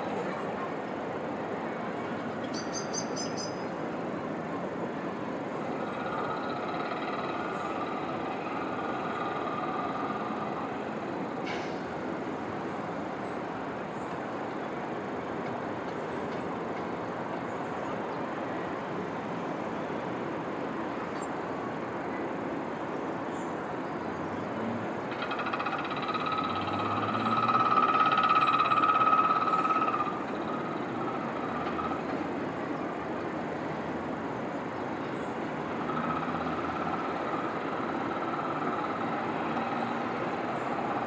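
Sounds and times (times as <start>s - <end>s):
distant urban rumble: 0.0s - 41.0s
train wheels squealing: 25.3s - 32.2s.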